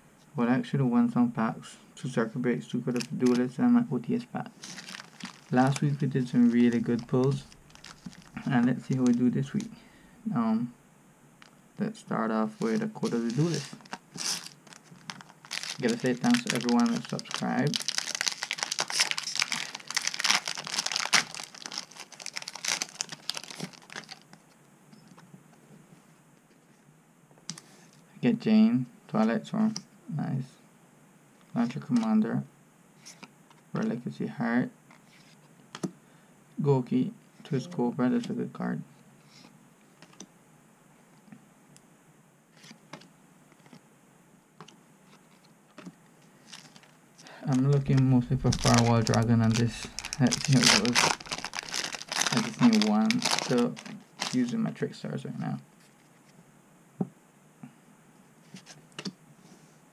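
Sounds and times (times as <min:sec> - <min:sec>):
foil wrapper crinkling and tearing: 0:04.6 - 0:09.7, 0:12.6 - 0:24.5, 0:46.4 - 0:54.5.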